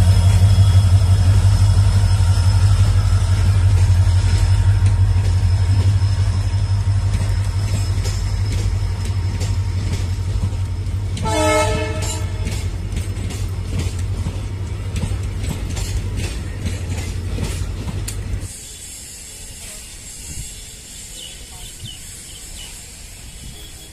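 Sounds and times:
locomotive engine rumble: 0.0 - 23.9
wheels clicking over rail joints: 7.0 - 18.5
train horn blast: 11.2 - 12.6.

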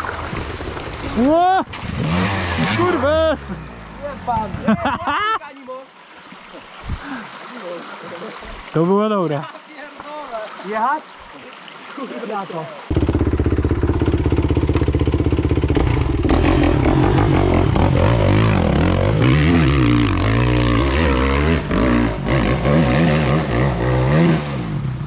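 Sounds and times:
motorcycle engine revving: 1.7 - 4.6, 12.9 - 25.0.

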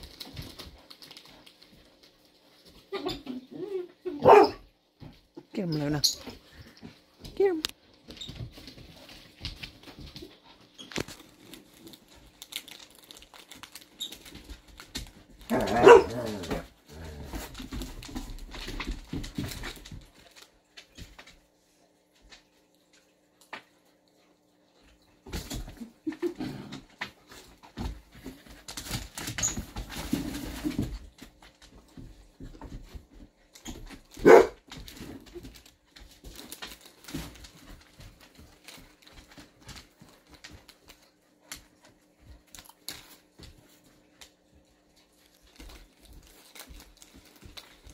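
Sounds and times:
dogs scuffling with clicking claws: 0.0 - 3.4, 4.2 - 47.9
dog barking: 4.2 - 4.6, 15.5 - 16.3, 34.2 - 34.6.

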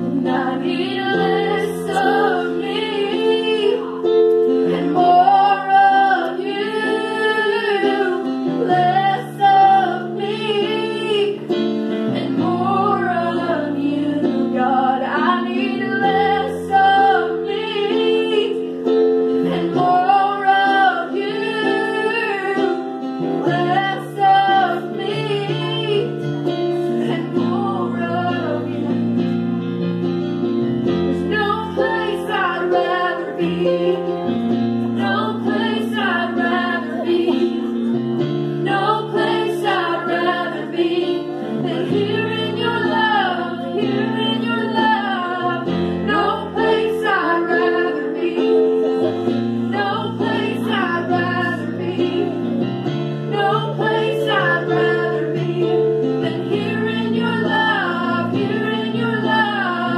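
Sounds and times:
women singing gospel: 0.0 - 29.3, 30.9 - 59.9
digital piano chords: 0.0 - 59.9.

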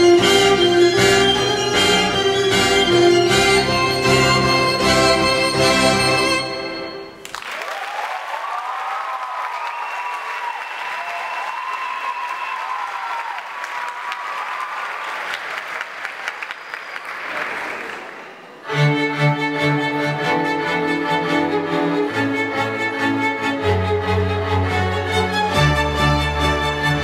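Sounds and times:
orchestral string music: 0.0 - 7.2, 18.6 - 27.0
audience applauding and cheering: 7.2 - 18.6.

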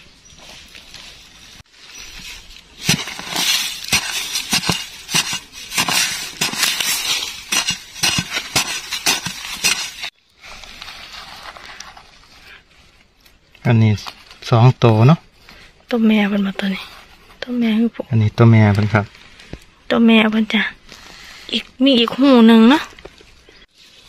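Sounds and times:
soil scraping and crumbling: 0.0 - 15.1
digging tool chopping into earth: 2.8 - 10.1.

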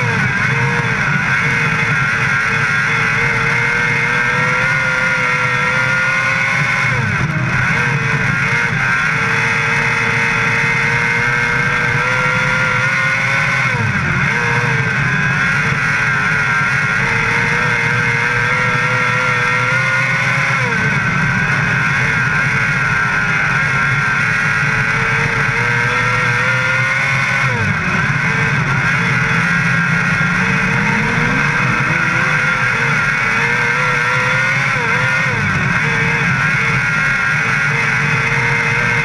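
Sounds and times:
race car engine at high revs: 0.0 - 39.0.

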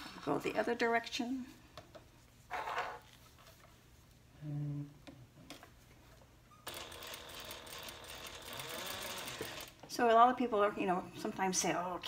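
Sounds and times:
sewing machine running: 6.7 - 9.8.

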